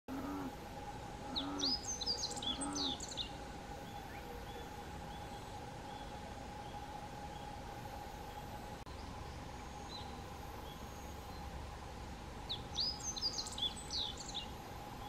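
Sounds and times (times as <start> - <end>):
short low bird calls: 0.1 - 0.6, 1.2 - 7.5
birds twittering: 0.1 - 15.0
faint steady hum: 0.1 - 15.0.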